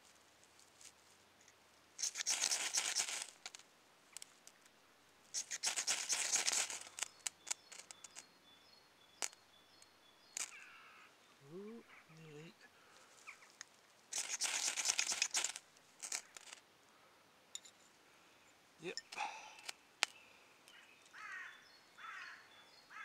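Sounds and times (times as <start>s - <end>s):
ferro rod scraped with striker: 2.0s - 3.4s, 5.4s - 8.2s, 14.1s - 16.6s.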